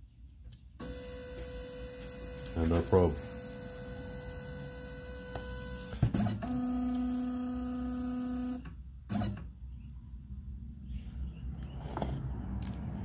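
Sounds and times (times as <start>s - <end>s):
stepper motor whine: 0.8s - 8.7s.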